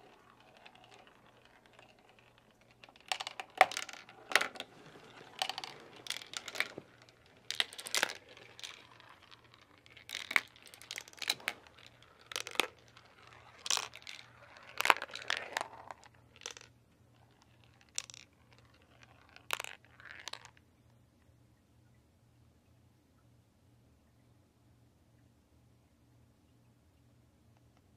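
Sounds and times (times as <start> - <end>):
marbles clattering down plastic track: 0.0 - 20.6.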